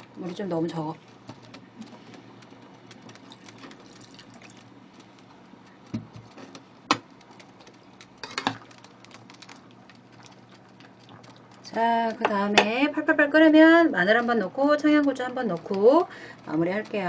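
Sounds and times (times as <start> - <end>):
water pouring into a pot: 3.4 - 4.6.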